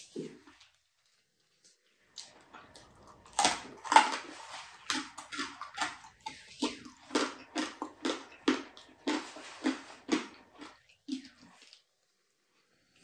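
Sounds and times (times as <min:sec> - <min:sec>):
mouth chewing: 0:02.1 - 0:11.9
person biting food: 0:02.2 - 0:11.8.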